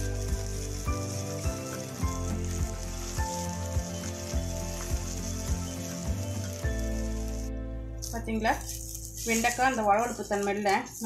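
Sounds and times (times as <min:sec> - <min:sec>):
background music with steady beat: 0:00.0 - 0:11.0
okra sizzling in oil: 0:00.0 - 0:11.0
wooden spatula stirring: 0:00.0 - 0:11.0.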